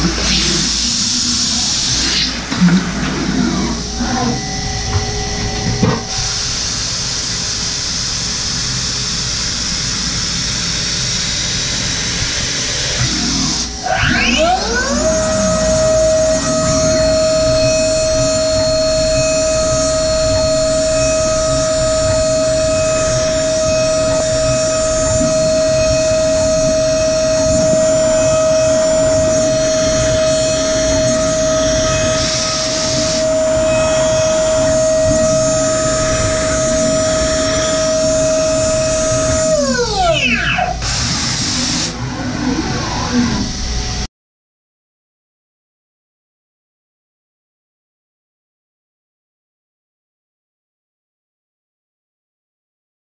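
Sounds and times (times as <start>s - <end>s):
low hum: 0.0s - 7.5s, 13.7s - 40.2s
mill spindle hiss and whine: 0.0s - 44.1s.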